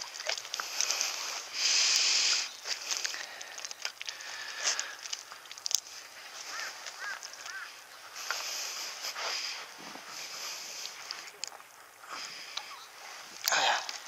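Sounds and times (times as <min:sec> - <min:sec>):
short bird calls: 0:06.4 - 0:07.7.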